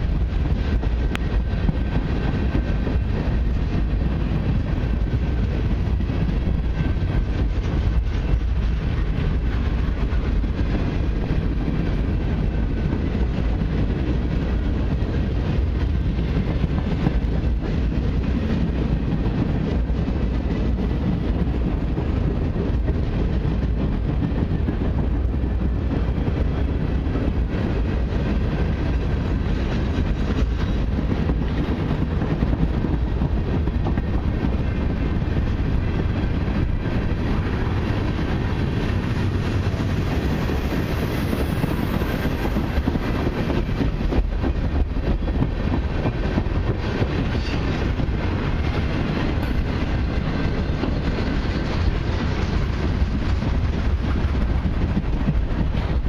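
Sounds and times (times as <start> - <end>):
freight train wheels rumbling: 0.0 - 56.0.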